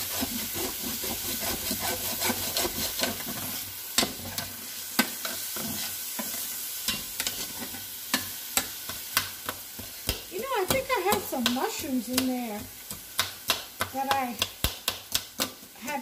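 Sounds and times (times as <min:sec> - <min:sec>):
vegetables sizzling in oil: 0:00.0 - 0:16.0
tongs clicking against pan: 0:08.1 - 0:16.0.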